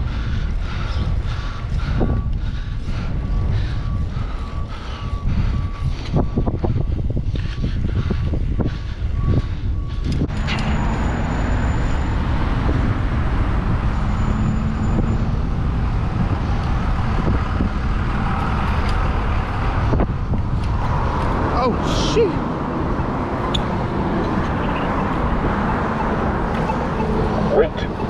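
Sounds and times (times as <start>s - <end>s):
wind on microphone: 0.0s - 21.8s
motor traffic passing: 0.0s - 28.0s.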